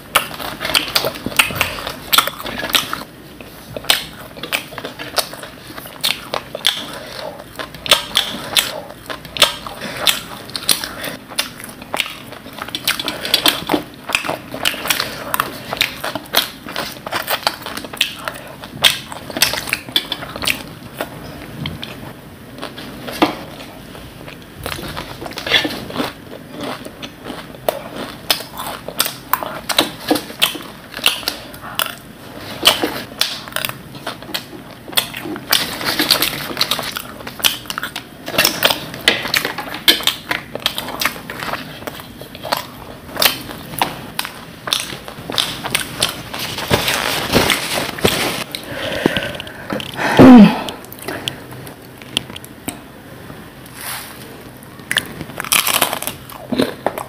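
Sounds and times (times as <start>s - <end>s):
crunchy chewing: 0.0s - 50.0s, 53.6s - 57.0s.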